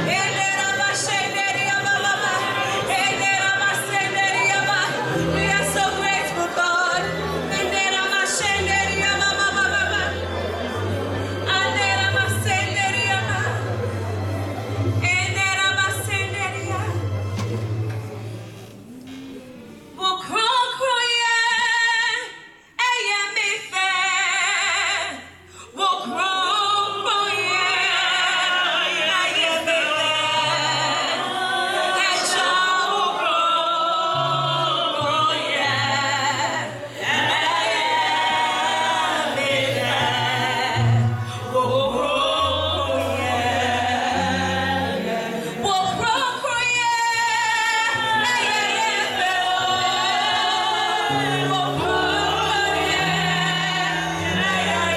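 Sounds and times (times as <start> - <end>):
voices singing a song: 0.0 - 13.8, 26.0 - 54.9
instrumental accompaniment: 0.0 - 20.0.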